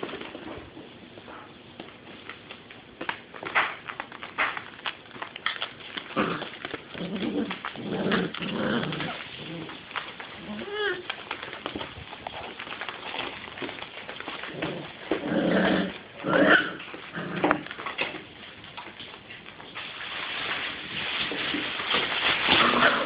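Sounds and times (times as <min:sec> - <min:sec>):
puppies whimpering and growling: 0:06.1 - 0:11.4.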